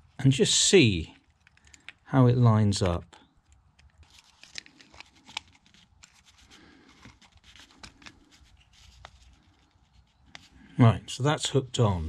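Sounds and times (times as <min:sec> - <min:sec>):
faint clicks of pump parts: 0:01.2 - 0:02.0.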